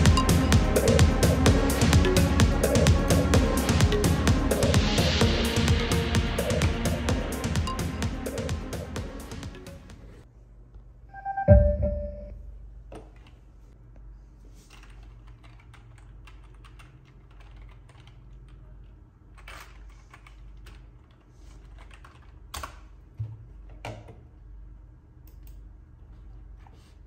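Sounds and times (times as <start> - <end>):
keyboard typing: 6.4 - 9.7, 14.7 - 18.8, 19.4 - 22.7
low steady hum: 9.8 - 14.4.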